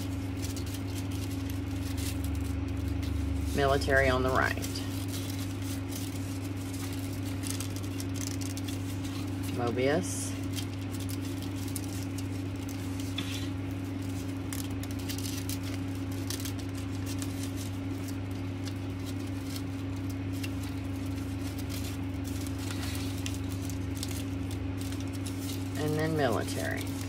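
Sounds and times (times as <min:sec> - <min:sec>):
ribbon rustling and crinkling: 0:00.0 - 0:27.0
steady low hum: 0:00.0 - 0:27.0.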